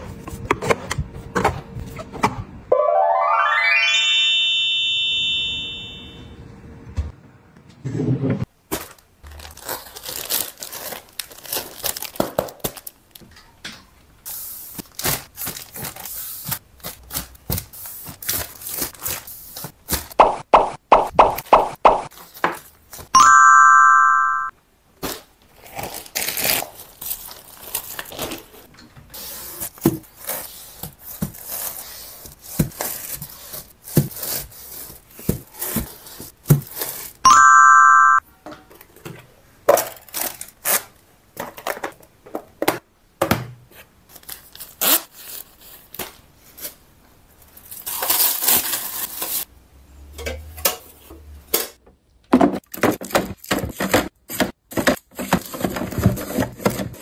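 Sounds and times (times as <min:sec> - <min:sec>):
bright chime: 0:02.8 - 0:06.3, 0:23.2 - 0:24.5, 0:37.3 - 0:38.2
plastic packs rustling and crinkling: 0:08.6 - 0:13.5, 0:14.3 - 0:20.2, 0:25.0 - 0:37.2, 0:39.6 - 0:42.8, 0:43.7 - 0:49.5, 0:52.5 - 0:57.0.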